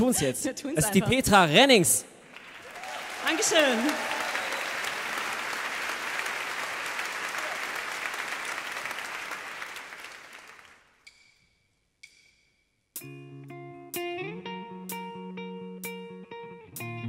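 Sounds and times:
audience applause: 0:02.3 - 0:10.9.

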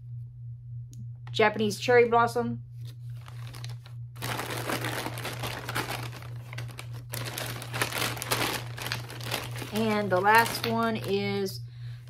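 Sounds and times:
plastic bag crinkling: 0:03.1 - 0:11.5.

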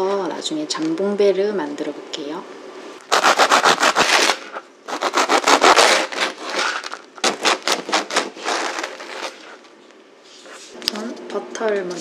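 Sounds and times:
knife sawing through bread crust: 0:03.1 - 0:09.6.

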